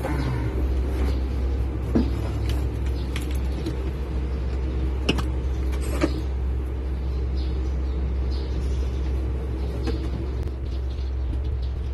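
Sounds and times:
low mechanical hum: 0:00.0 - 0:11.9.

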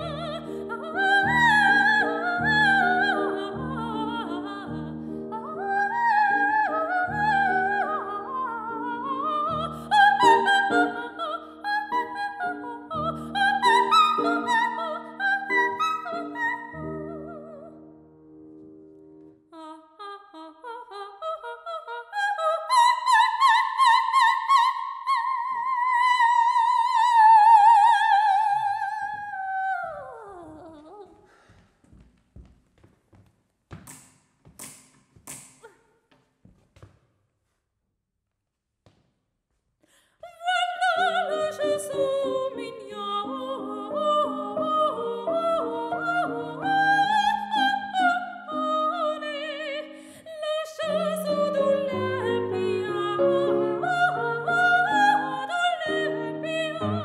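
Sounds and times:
soprano singing: 0:00.0 - 0:18.4, 0:19.4 - 0:31.3, 0:40.2 - 0:57.0
piano chords: 0:00.0 - 0:19.4, 0:40.8 - 0:57.0.

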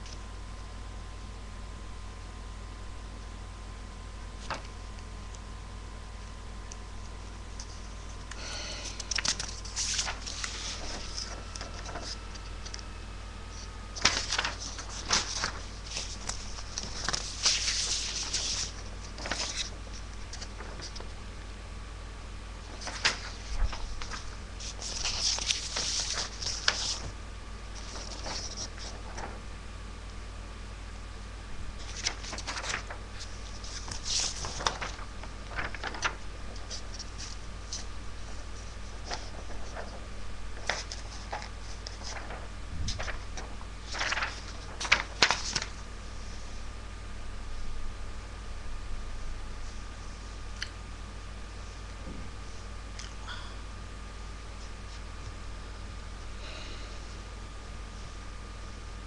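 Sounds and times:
low electrical hum: 0:00.0 - 0:59.0
paper rustling and crinkling: 0:07.6 - 0:12.9, 0:13.5 - 0:21.2, 0:22.6 - 0:29.5, 0:31.7 - 0:46.7
scratchy rustling and clicks: 0:40.6 - 0:45.8.

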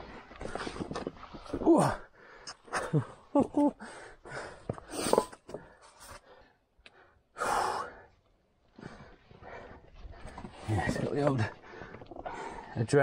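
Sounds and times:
person breathing hard: 0:03.8 - 0:10.7, 0:11.5 - 0:12.8.

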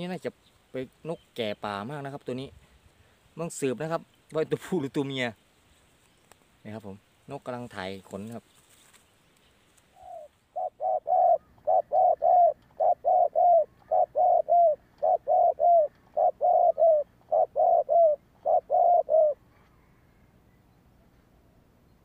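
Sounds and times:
dove cooing: 0:09.9 - 0:20.3.

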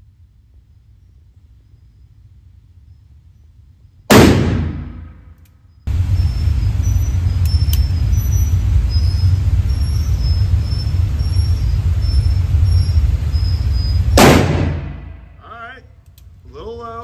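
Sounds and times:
steady low rumble: 0:00.0 - 0:17.0
revolver shot ringing: 0:14.1 - 0:15.3.

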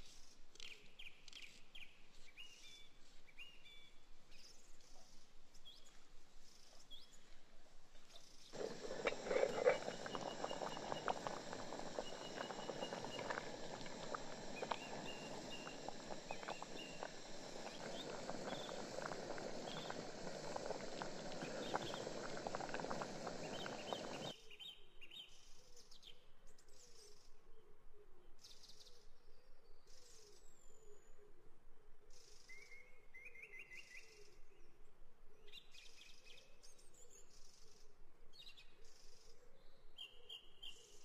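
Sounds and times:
birds chirping: 0:08.6 - 0:24.3
water boiling in a pot: 0:08.6 - 0:24.4.

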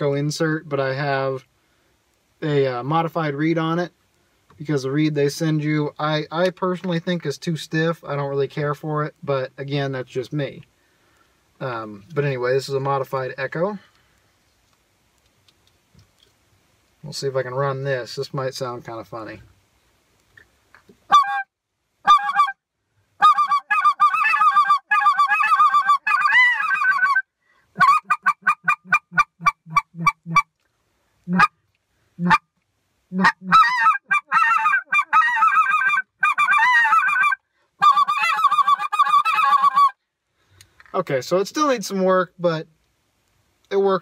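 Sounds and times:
duck call quacks: 0:21.1 - 0:22.6, 0:23.2 - 0:27.2, 0:27.8 - 0:30.5, 0:31.3 - 0:31.6, 0:32.2 - 0:32.4, 0:33.1 - 0:40.0.

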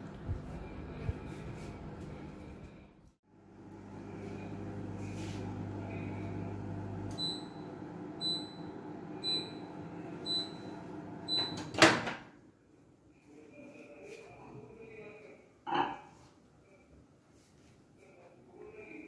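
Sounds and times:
microwave oven humming: 0:00.0 - 0:11.9.

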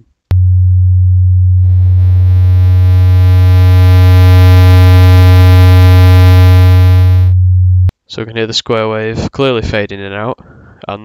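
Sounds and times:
low sine tone: 0:00.3 - 0:07.9
square wave synth tone: 0:01.6 - 0:07.5.

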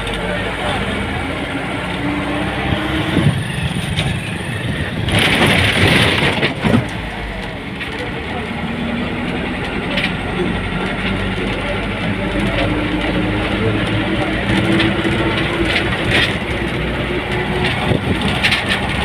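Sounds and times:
bus engine drone: 0:00.0 - 0:19.0
road and wind noise: 0:00.0 - 0:19.0
rattles from window fittings: 0:03.8 - 0:07.0.

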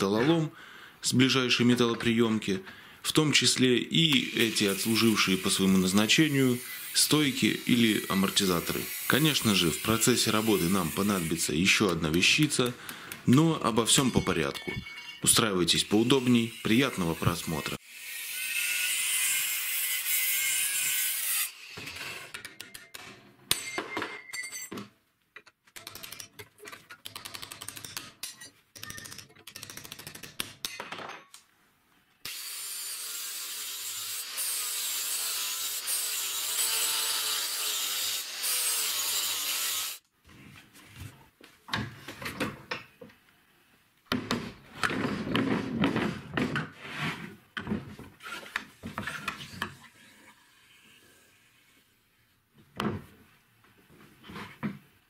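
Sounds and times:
angle grinder cutting steel: 0:04.0 - 0:12.0, 0:15.0 - 0:22.3, 0:32.2 - 0:40.0
metal parts clicking and knocking: 0:22.3 - 0:31.4.

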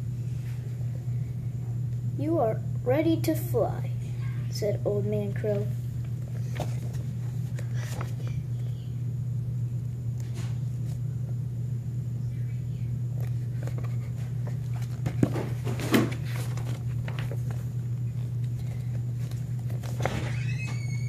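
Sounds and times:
steady low hum: 0:00.0 - 0:21.0
book handling rustles and knocks: 0:06.2 - 0:08.3, 0:13.2 - 0:20.3.

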